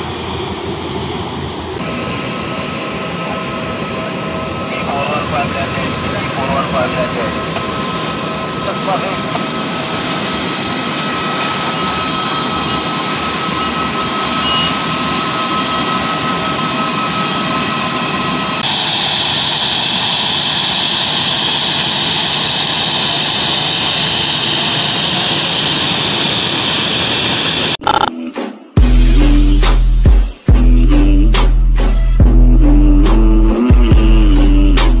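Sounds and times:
jet airliner engines roaring: 0.0s - 27.8s.

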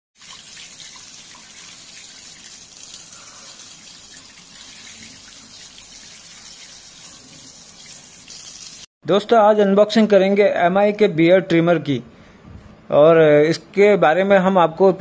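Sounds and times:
tap water running into basin: 0.2s - 8.9s.

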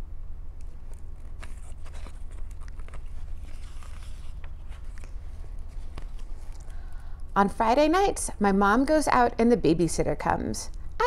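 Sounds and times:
steady low hum: 0.0s - 11.0s
faint rustles and clicks: 0.6s - 7.0s.

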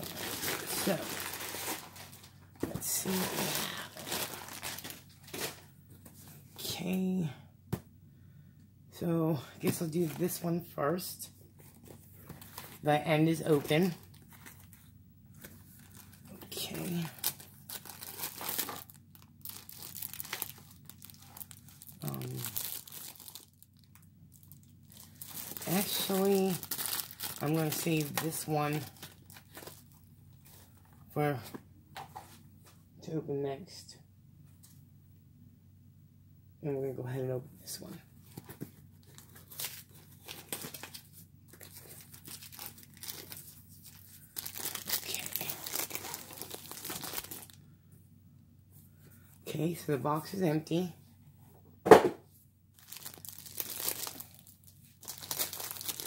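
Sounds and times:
packaging rustling and crinkling: 0.0s - 6.2s, 11.6s - 32.4s, 38.2s - 47.6s, 52.8s - 56.0s.

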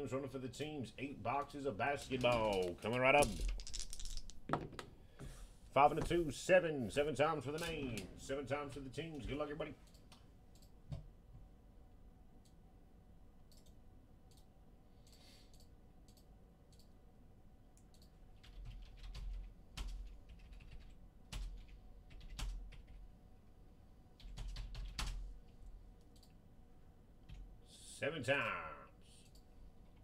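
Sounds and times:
keyboard typing: 1.9s - 4.4s, 17.9s - 23.0s.

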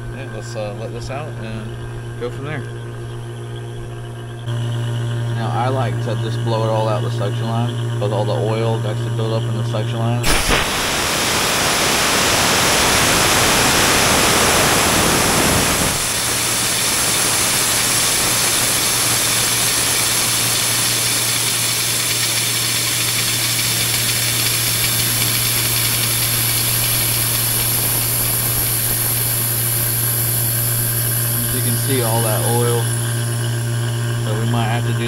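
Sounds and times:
steady low hum: 0.0s - 35.0s
gas hissing from valve: 10.2s - 34.5s.

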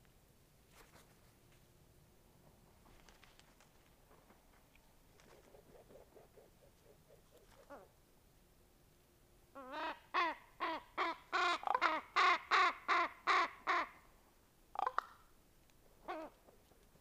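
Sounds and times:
crow calling: 9.6s - 14.0s, 14.7s - 15.3s, 16.0s - 16.4s.

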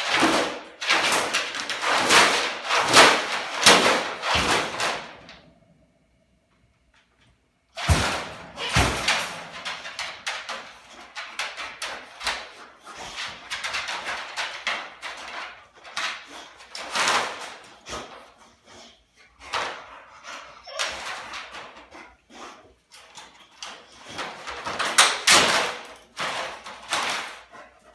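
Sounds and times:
loud bangs: 7.8s - 10.4s
wire dog crate rattling: 7.8s - 17.7s.

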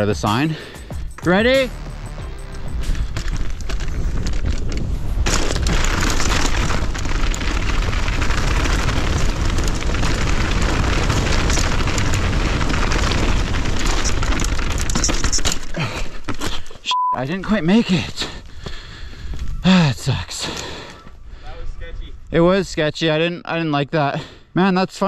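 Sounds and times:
bike tyres rolling over gravel: 2.3s - 16.8s
wind buffeting microphone: 2.8s - 14.9s, 18.4s - 19.8s.

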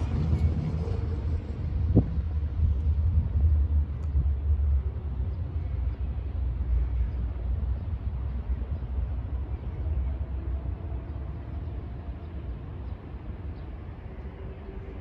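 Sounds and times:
uneven low street rumble: 0.0s - 15.0s.

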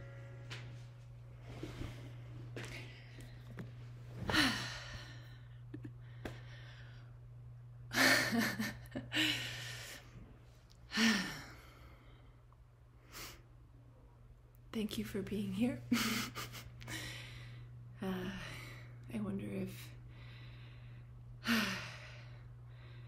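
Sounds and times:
woman sighing and exhaling: 4.2s - 7.0s
woman laughing: 7.9s - 9.5s, 15.9s - 16.9s.

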